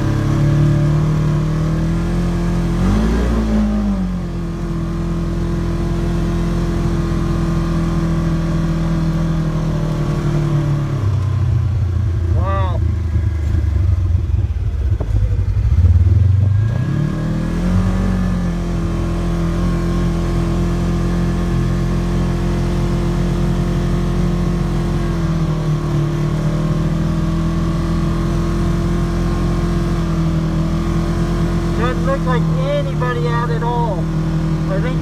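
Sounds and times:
vehicle engine revving: 0.0 - 35.0.

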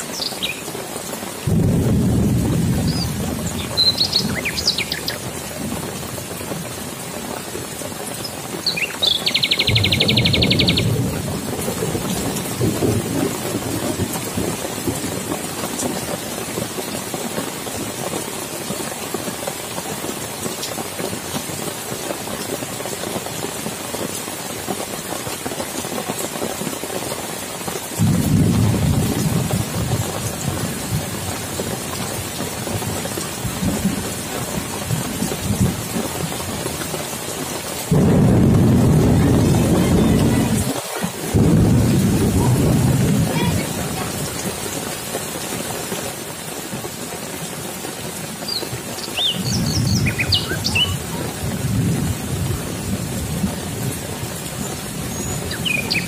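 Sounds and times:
heavy rain on leaves and water: 0.0 - 56.0
rolls of thunder: 1.5 - 4.4, 28.0 - 31.3, 37.9 - 44.3
bird calling: 2.9 - 5.2, 8.6 - 10.9, 48.5 - 51.3, 55.1 - 56.0.

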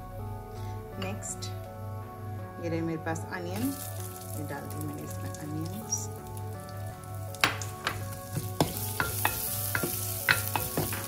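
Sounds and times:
onions sizzling in hot oil: 3.6 - 11.0.

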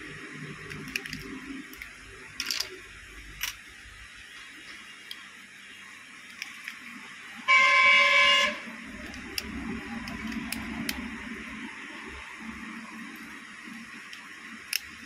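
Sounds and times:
shop room sound: 0.0 - 15.0
plastic phone parts clicking: 0.6 - 3.7, 6.3 - 7.0, 8.9 - 11.1, 14.0 - 15.0
vehicle horn honking: 7.4 - 8.7.

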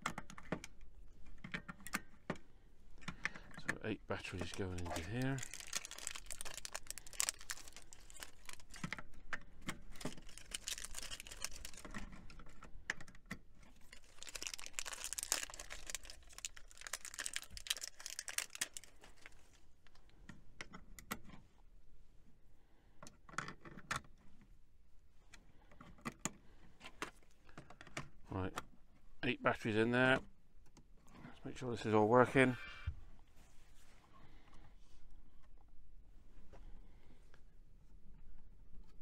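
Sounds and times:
rustling handling: 4.1 - 12.6, 13.6 - 20.0.

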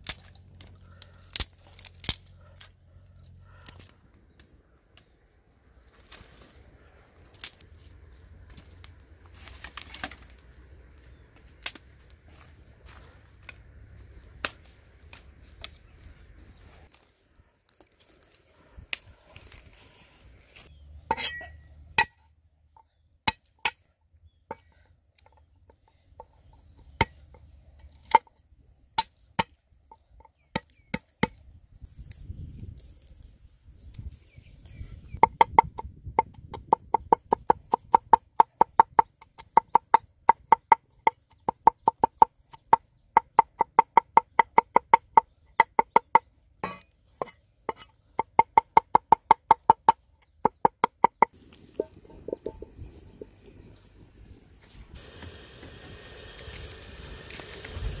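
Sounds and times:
dry twigs crackling: 0.0 - 20.8, 31.8 - 34.6, 51.3 - 55.0.

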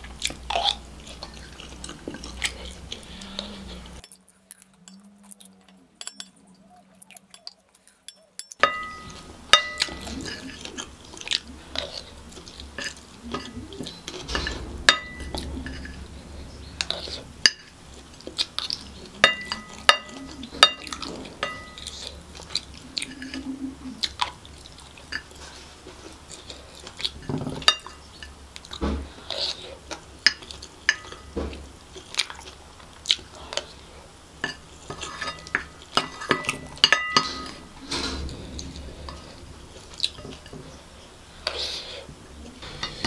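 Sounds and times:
chewing: 0.0 - 31.3, 31.9 - 43.0
wooden spoon scraping ceramic plate: 42.6 - 43.0.

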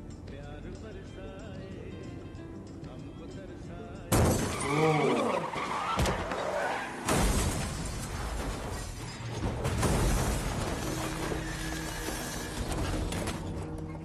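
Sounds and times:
wavering screech: 4.5 - 6.9
hard crashing hits: 7.0 - 12.1.

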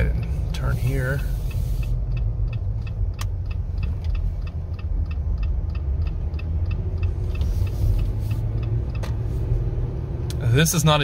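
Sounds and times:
truck driving rumble: 0.0 - 11.0
turn signal ticking: 0.0 - 11.0.

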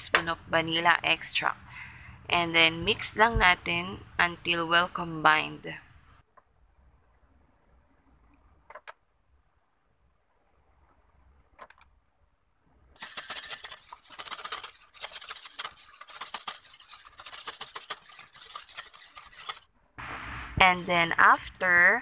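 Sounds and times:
wire whisk rattling in metal bowl: 13.0 - 19.6.

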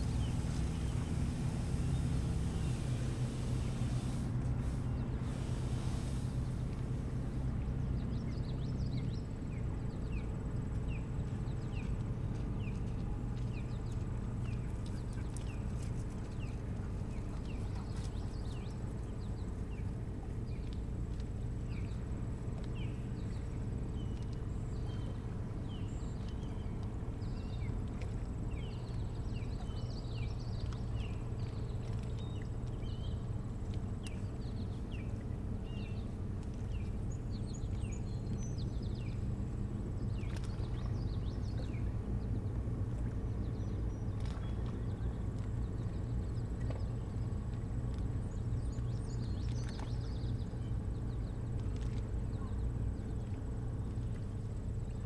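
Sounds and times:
birds chirping: 0.0 - 6.8
steady low hum: 0.0 - 55.0.

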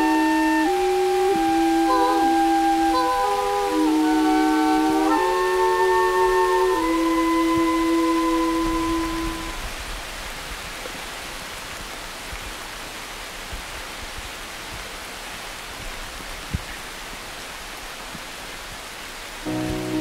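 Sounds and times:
music: 0.0 - 9.6, 19.5 - 20.0
rain-like rushing hiss: 0.0 - 20.0.

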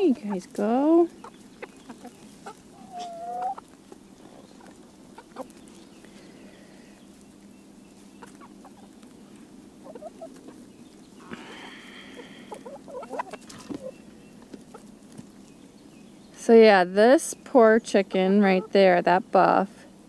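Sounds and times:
hens clucking: 0.0 - 19.6
hen drawn-out call: 2.4 - 3.6.

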